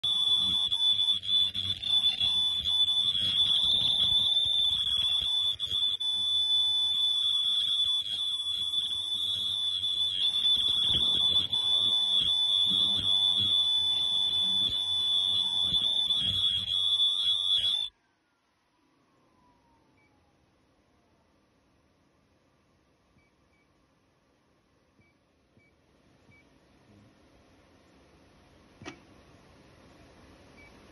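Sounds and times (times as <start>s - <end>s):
high-pitched alarm buzzer: 0.0s - 17.9s.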